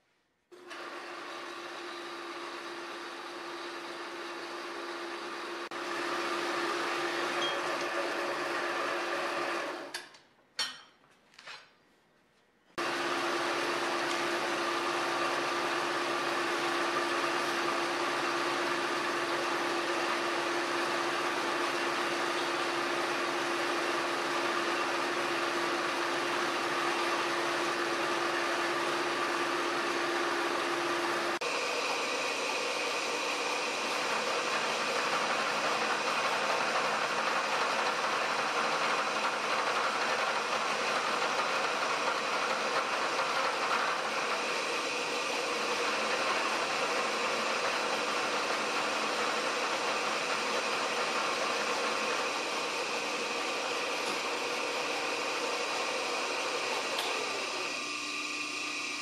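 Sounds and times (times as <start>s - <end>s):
bandsaw cutting steel tube: 12.8s - 58.0s.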